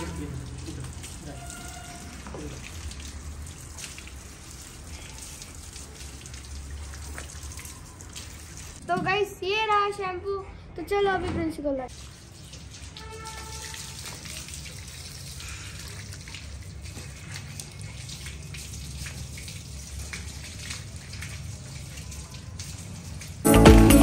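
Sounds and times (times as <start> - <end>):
tap water running and splashing: 0.0 - 9.7, 11.9 - 23.5
music: 23.4 - 24.0.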